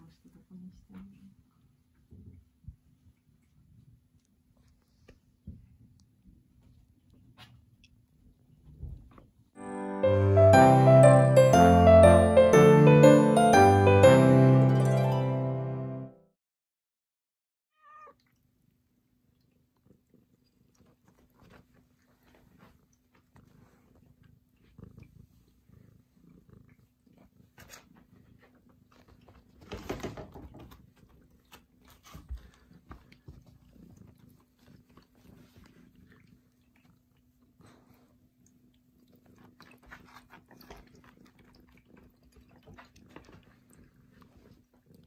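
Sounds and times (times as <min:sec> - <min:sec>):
cat meowing: 0:17.7 - 0:18.2
faint soft cat noises: 0:17.7 - 0:18.4, 0:19.2 - 0:29.7.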